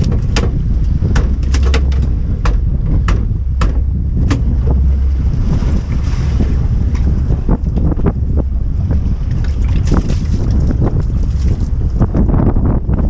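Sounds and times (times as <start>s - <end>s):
sharp clicks and knocks: 0.0s - 5.0s
boat motor running: 0.0s - 13.0s
wind buffeting microphone: 0.0s - 13.0s.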